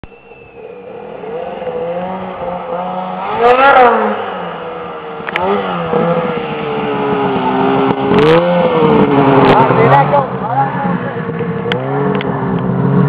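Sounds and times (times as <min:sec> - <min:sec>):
snowmobile engine revving: 0:00.2 - 0:13.0.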